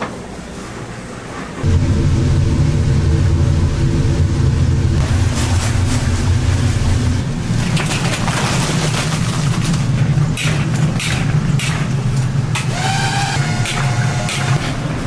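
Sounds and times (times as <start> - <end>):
steady low kitchen roar: 0.0 - 15.0
high-pitched whine: 1.6 - 7.2.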